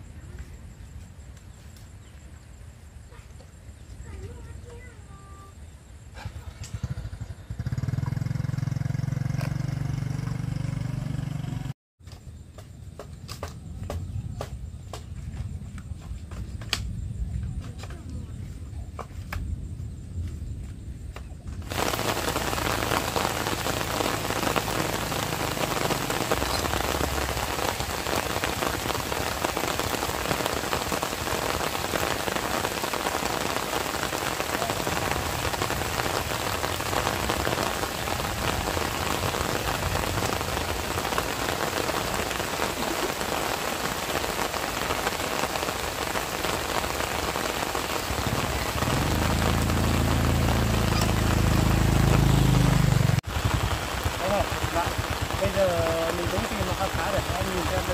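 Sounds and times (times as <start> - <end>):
heavy rain falling: 21.6 - 57.9
low hum: 48.5 - 53.2.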